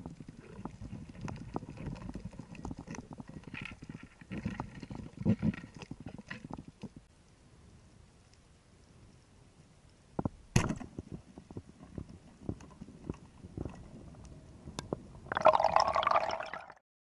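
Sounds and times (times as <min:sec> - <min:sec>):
rush of bubbles: 0:15.3 - 0:16.8.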